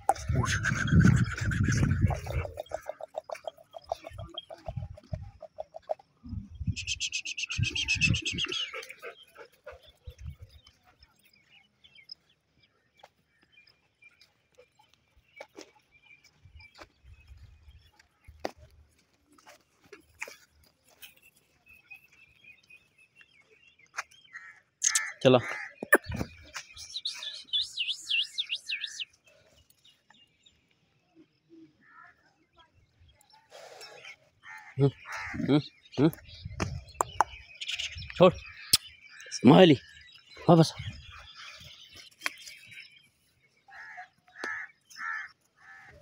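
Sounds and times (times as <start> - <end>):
rapid high chattering: 0.0 - 5.7
bird whistled calls: 6.7 - 8.8, 25.9 - 29.1.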